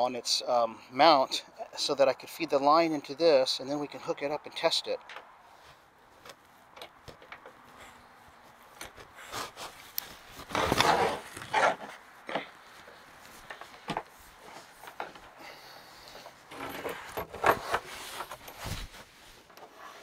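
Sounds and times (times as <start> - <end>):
hose scraping through wooden floor: 9.0 - 12.0, 16.5 - 20.0.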